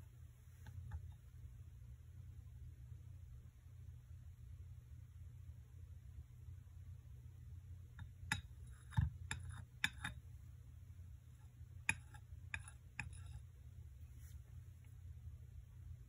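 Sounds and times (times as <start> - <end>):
saucer clicking against cup: 8.0 - 10.2.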